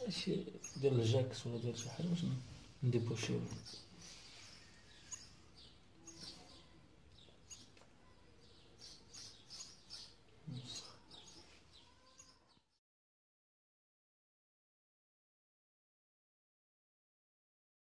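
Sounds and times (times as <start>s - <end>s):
bird chirping: 0.0s - 12.8s.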